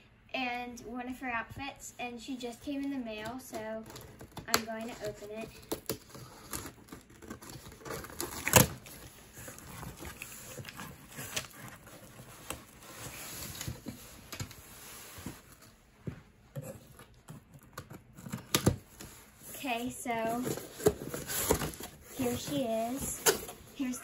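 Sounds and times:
cardboard scraping and rustling: 4.8 - 15.8, 16.6 - 24.0.

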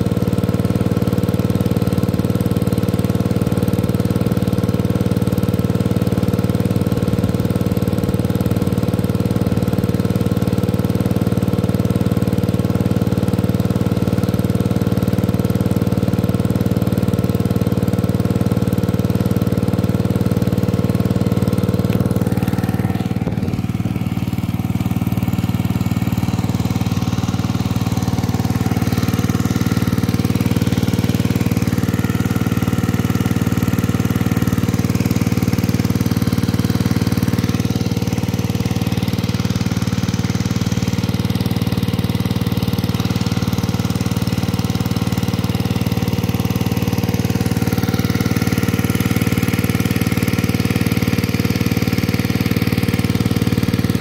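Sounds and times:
small engine water pump chugging: 0.0 - 54.0
water pumping through hose: 0.1 - 54.0.

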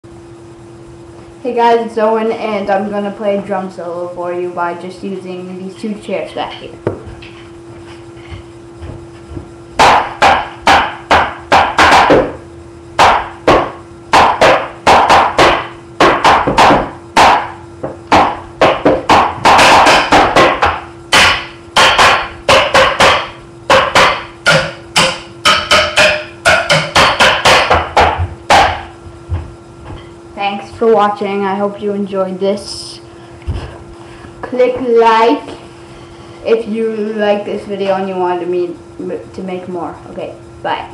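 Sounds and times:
hands beating chairs as drums: 8.3 - 12.4, 13.0 - 30.1.

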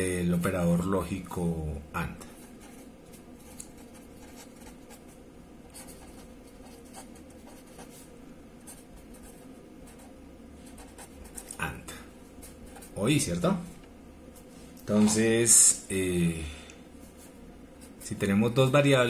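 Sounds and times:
steady low hum: 0.0 - 19.0
marker pen scratching on paper: 2.3 - 11.7, 12.4 - 13.2.

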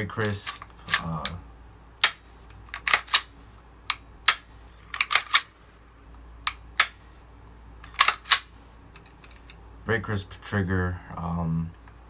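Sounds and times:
pistol slide and trigger clicks: 2.0 - 3.3, 3.9 - 5.5, 6.5 - 7.0, 7.9 - 8.5.

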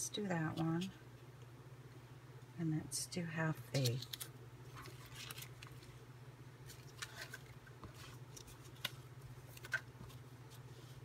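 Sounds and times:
steady low hum: 0.0 - 11.0
paper scraps rustling: 3.7 - 6.0, 6.6 - 11.0.

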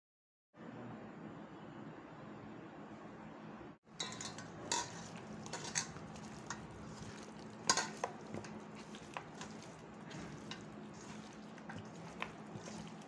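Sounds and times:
meat scraping metal bowl: 3.9 - 13.0
wet squelches of mixing meat: 3.9 - 13.0.

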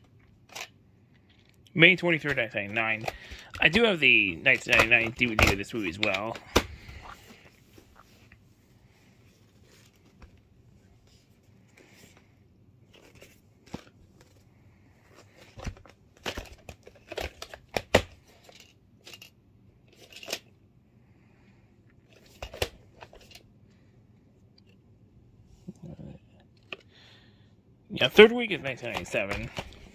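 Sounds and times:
plastic case clicks and clacks: 2.2 - 6.8, 15.4 - 19.3, 28.8 - 29.9.

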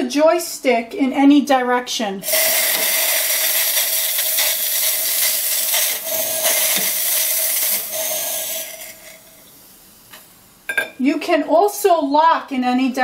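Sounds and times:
steam wand hissing with whistle: 2.2 - 9.5.

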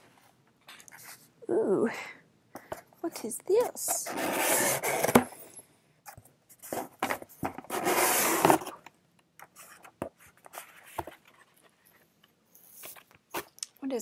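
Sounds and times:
paper and cardboard rustling: 6.6 - 8.8, 9.4 - 13.6.

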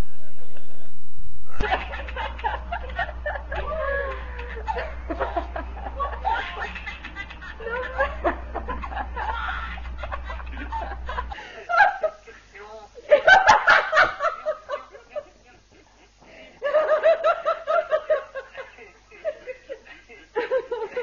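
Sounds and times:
steady low hum: 0.0 - 21.0
man laughing loudly: 1.5 - 21.0
woman laughing and squealing: 1.6 - 12.4.

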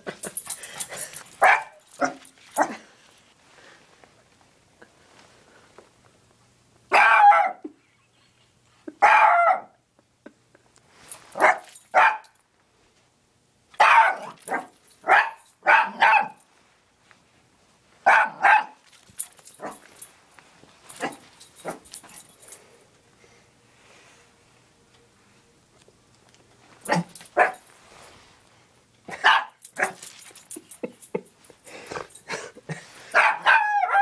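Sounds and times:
small dog barking: 1.4 - 2.8, 6.9 - 7.6, 9.0 - 9.8, 11.4 - 12.4, 13.8 - 16.4, 18.0 - 18.8, 26.9 - 27.6, 29.1 - 30.0, 33.1 - 34.0
faint clicks and rustles: 18.8 - 23.1, 24.8 - 32.9.

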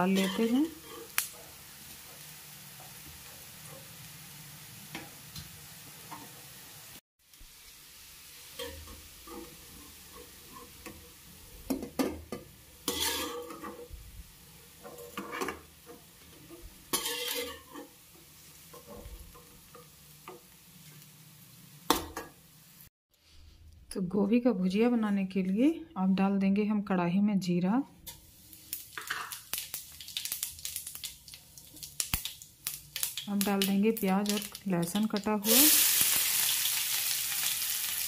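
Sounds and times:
metal spoon scraping and clattering: 0.0 - 1.1, 12.8 - 13.9, 14.8 - 15.6, 16.5 - 17.9
oil sizzling: 0.0 - 22.9, 28.1 - 38.0.

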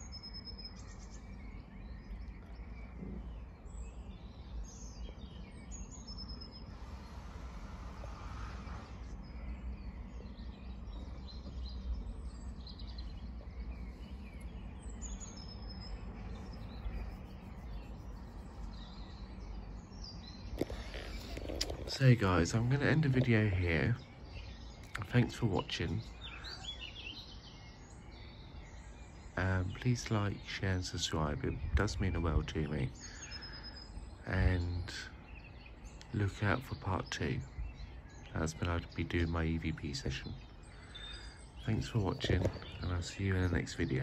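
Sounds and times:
bird chirps: 0.0 - 44.0
low rumble: 6.5 - 24.0.

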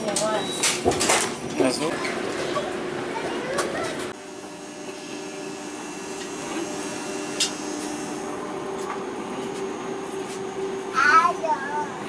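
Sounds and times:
steady whining tones: 2.4 - 12.0
electric drive hum: 4.1 - 11.0.

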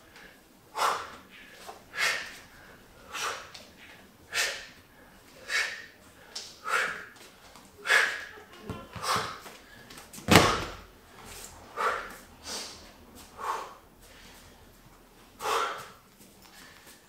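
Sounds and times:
man exhaling: 7.8 - 8.4
bag thudding onto mat: 10.2 - 10.9.

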